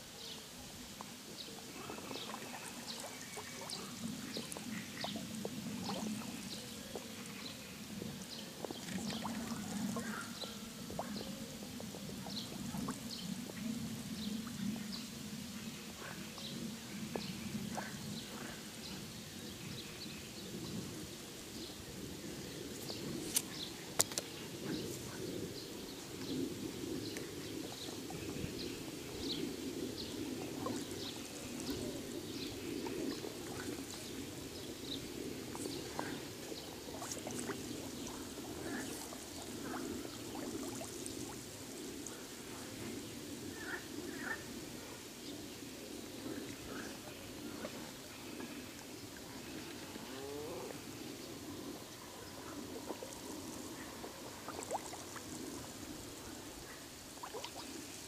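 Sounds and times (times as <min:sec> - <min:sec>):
frogs croaking: 0:24.0 - 0:45.0.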